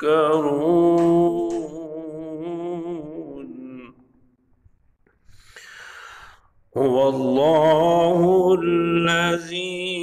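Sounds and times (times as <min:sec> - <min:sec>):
man chanting recitation: 0:00.0 - 0:04.2, 0:06.7 - 0:10.0.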